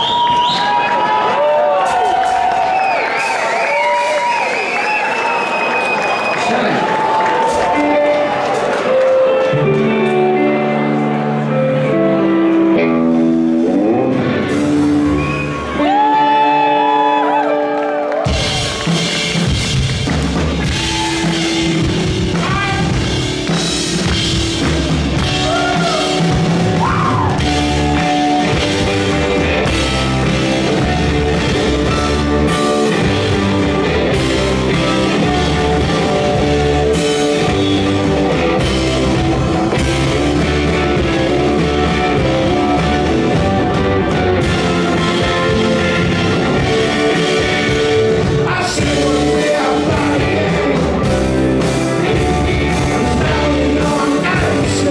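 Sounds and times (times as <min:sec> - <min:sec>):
drum kit: 0:00.0 - 0:05.5, 0:12.2 - 0:54.9
electric guitars: 0:06.5 - 0:54.9
bass guitar: 0:07.4 - 0:54.9
man singing lead vocal: 0:47.2 - 0:54.9.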